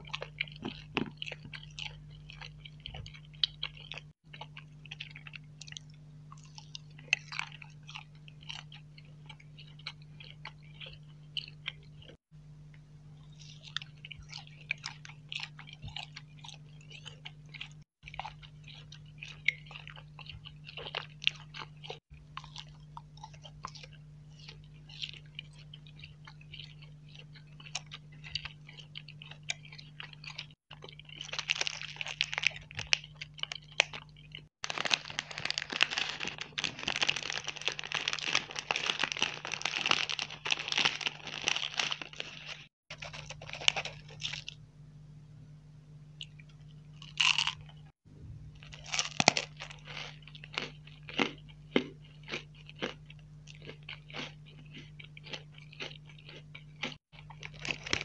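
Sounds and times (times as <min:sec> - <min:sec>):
crunchy bites: 0:00.0 - 0:12.2, 0:13.2 - 0:44.6, 0:47.0 - 0:47.9, 0:48.6 - 0:58.0
soft chewing: 0:00.0 - 0:44.6, 0:48.6 - 0:58.0
plastic wrapper crinkling: 0:31.2 - 0:33.0, 0:34.6 - 0:44.6, 0:57.4 - 0:58.0.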